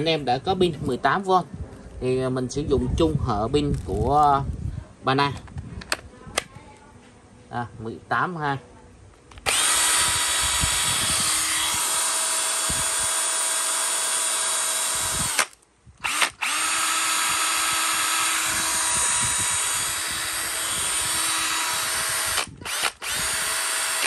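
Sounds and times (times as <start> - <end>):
cordless drill running: 9.4 - 24.0.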